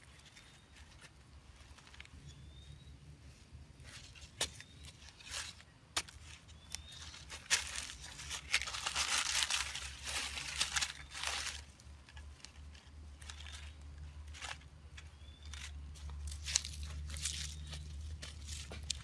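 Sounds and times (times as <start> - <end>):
hands raking loose earth and leaves: 0.0 - 19.0
digging stick knocking soil: 3.8 - 19.0
scraping and crumbling of earth: 3.8 - 19.0.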